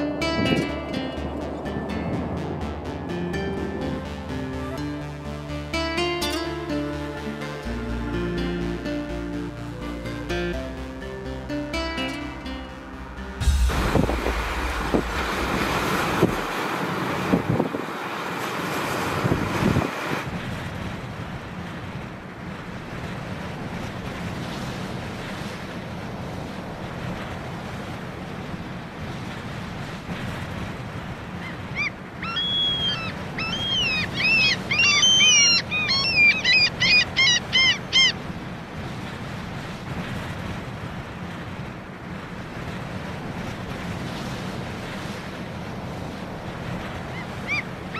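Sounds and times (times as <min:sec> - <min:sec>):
wind: 0:00.0 - 0:47.9
waves breaking over rocks: 0:13.4 - 0:47.9
bird calling: 0:31.4 - 0:38.2, 0:47.1 - 0:47.9.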